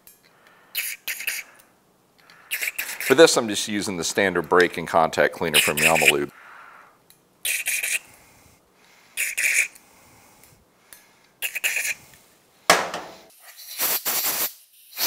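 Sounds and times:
aerosol spray hissing: 0.8 - 1.5, 2.5 - 3.3, 5.6 - 6.3, 7.5 - 8.1, 9.2 - 9.7, 11.4 - 12.0, 13.3 - 15.0
compressed air blow gun blasts: 0.8 - 1.5, 2.5 - 3.2, 13.2 - 15.0.

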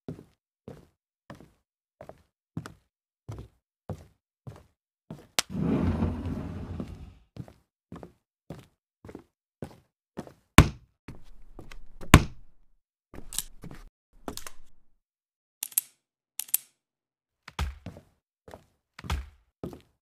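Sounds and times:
sharp plastic clicks: 15.6 - 16.8.

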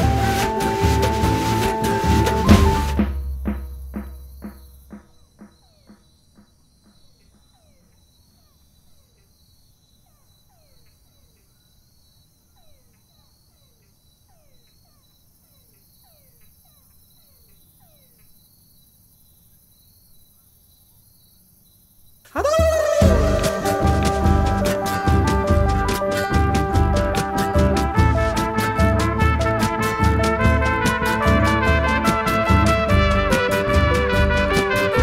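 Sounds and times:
chirring insects: 3.2 - 27.5
short falling calls: 22.3 - 26.7.

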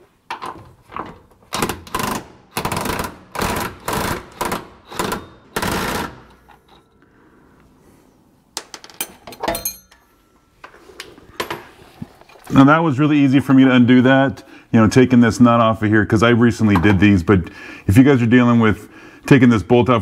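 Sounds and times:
impact wrench hammering: 1.6 - 6.4.

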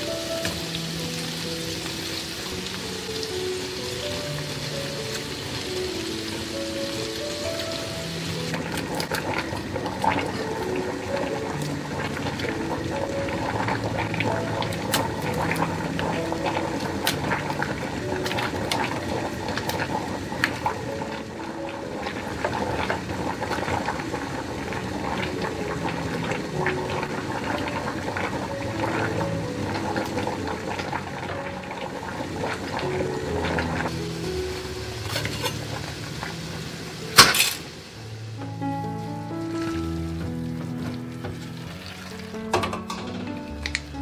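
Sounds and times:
background music: 0.0 - 44.0
prawns sizzling in oil: 0.0 - 44.0.

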